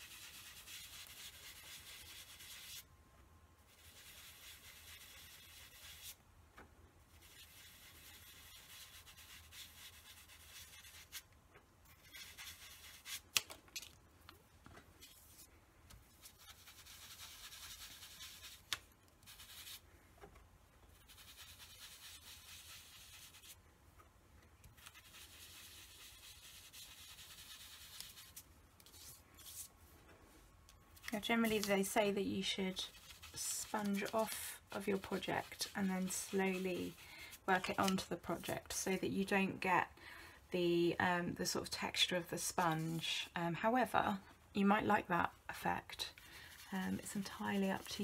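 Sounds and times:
sponge rubbing on cardstock: 0.0 - 2.8, 3.7 - 6.2, 7.1 - 11.2, 12.0 - 13.2, 16.2 - 19.8, 20.9 - 23.6, 24.8 - 29.7, 31.2 - 38.6, 46.2 - 48.0.

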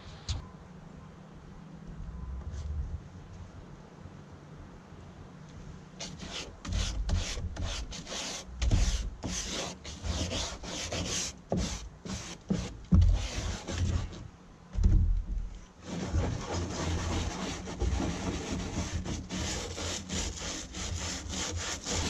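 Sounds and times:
brush scrubbing plastic: 6.0 - 14.2, 15.8 - 22.0.

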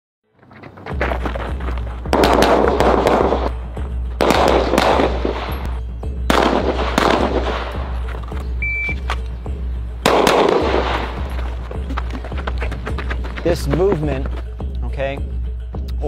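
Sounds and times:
background music with bass drone: 0.4 - 16.0
pistol shots: 2.1 - 3.6, 4.2 - 8.2, 10.0 - 11.4.

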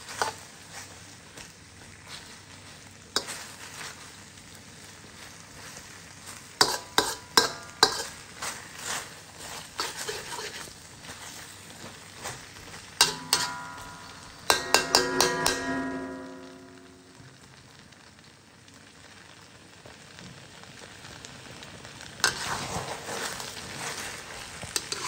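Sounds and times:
metal spatula scraping wok: 0.0 - 1.0, 5.6 - 17.2, 22.2 - 25.0
meat sizzling in wok: 0.0 - 25.0.

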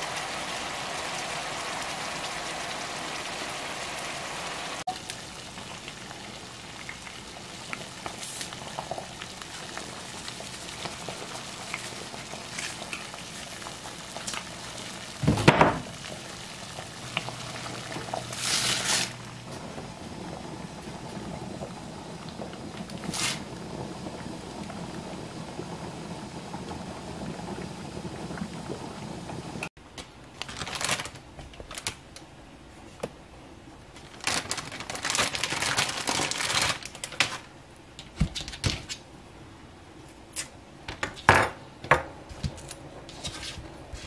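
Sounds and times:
meat sizzling in a skillet: 0.0 - 15.3
water boiling in a pot: 0.0 - 29.7, 34.0 - 38.2.

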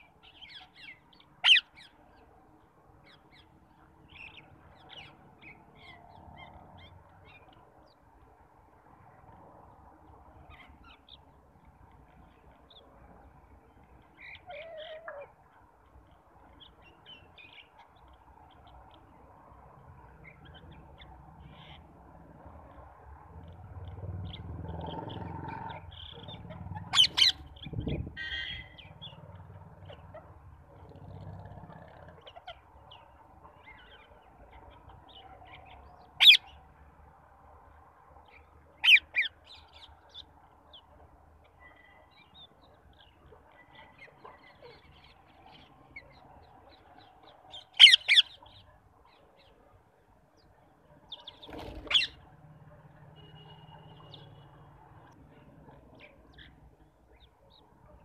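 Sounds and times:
parakeets screeching: 1.4 - 1.8, 24.9 - 28.9, 36.2 - 36.5, 38.8 - 39.4, 47.7 - 48.4, 51.4 - 52.2
parakeet chatter: 25.1 - 28.6, 47.8 - 48.4, 51.3 - 52.2.

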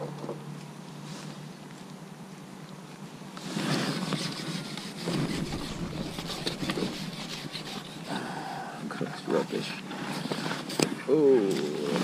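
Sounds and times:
low steady hum: 0.0 - 12.0
wind buffeting microphone: 5.0 - 8.1.

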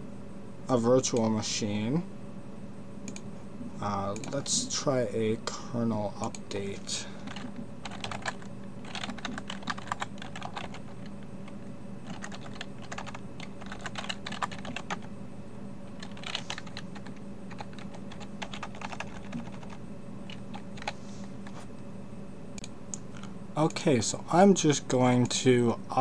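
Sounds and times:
faint steady hum: 0.0 - 26.0
computer keyboard typing: 4.1 - 4.5, 7.2 - 15.1, 15.9 - 21.6.

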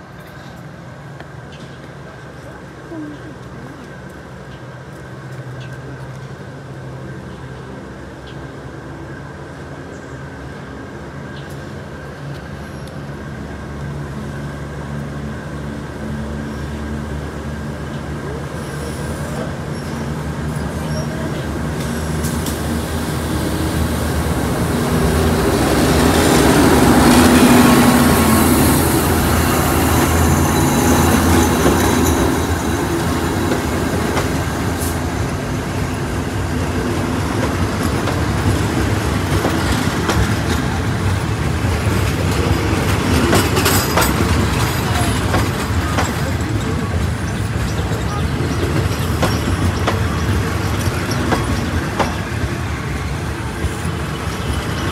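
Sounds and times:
diesel locomotive engine: 0.0 - 54.9
wheels clattering on track: 17.6 - 54.9
high squeal: 27.6 - 33.2.

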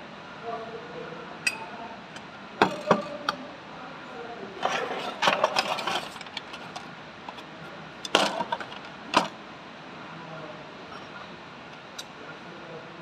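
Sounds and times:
metal tools clinking on steel: 2.6 - 3.4, 4.6 - 9.4.

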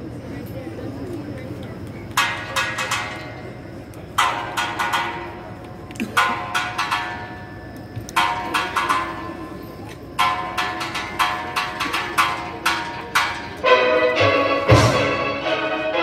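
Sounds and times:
steel pan band playing chords: 4.2 - 16.0.

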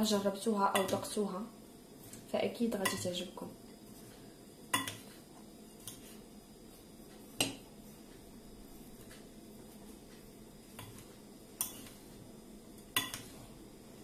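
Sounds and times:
spoon stirring in ceramic bowl: 3.8 - 8.1, 8.7 - 12.2, 12.8 - 13.5.

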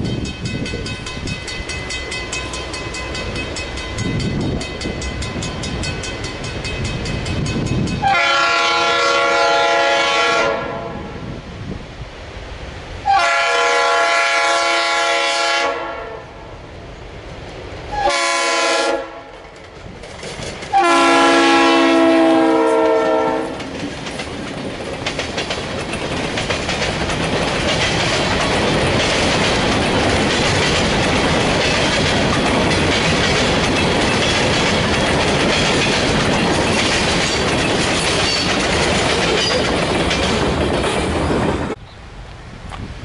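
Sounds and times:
train wheels clattering on rails: 0.0 - 9.2, 19.2 - 41.8
locomotive horn: 8.0 - 11.2, 13.0 - 16.4, 17.9 - 19.3, 20.7 - 23.7.

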